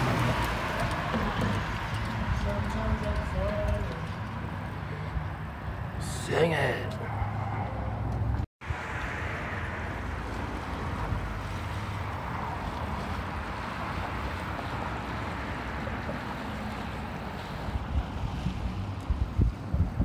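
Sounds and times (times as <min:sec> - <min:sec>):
low wind rumble on microphone: 0:07.1 - 0:20.0.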